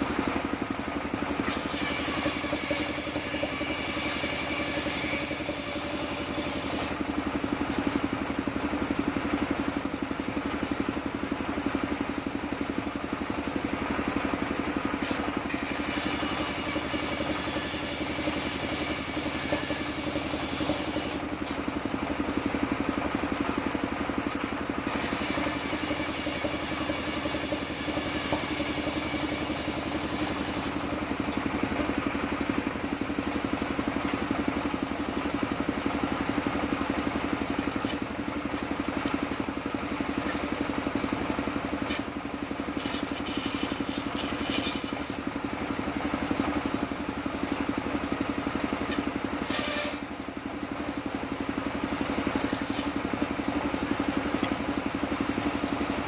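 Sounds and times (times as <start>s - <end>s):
stationary engine running: 0.0s - 56.0s
circular saw cutting wood: 1.3s - 8.1s, 14.9s - 21.6s, 24.8s - 31.0s, 42.7s - 45.4s, 48.9s - 50.2s.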